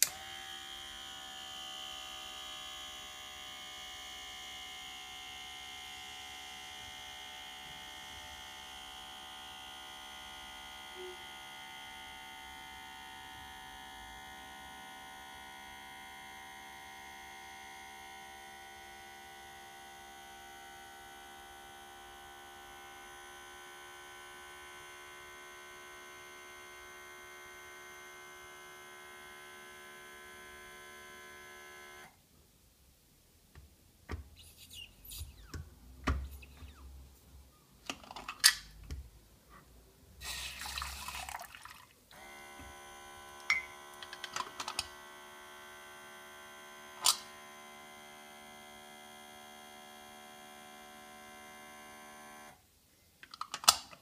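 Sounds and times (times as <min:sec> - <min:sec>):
espresso machine electrical hum: 0:00.0 - 0:32.2, 0:42.1 - 0:52.6.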